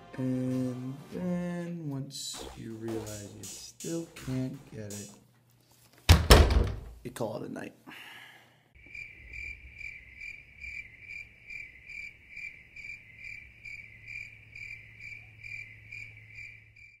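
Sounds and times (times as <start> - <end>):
crickets chirping: 8.8 - 17.0.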